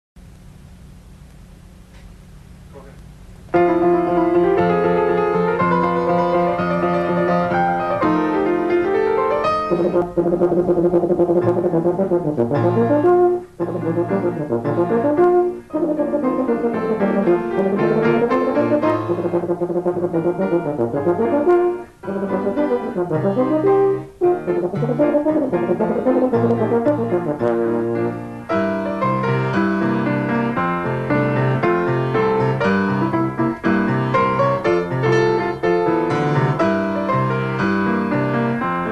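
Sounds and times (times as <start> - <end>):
piano accompaniment: 3.5 - 38.9
euphonium solo: 9.5 - 28.6.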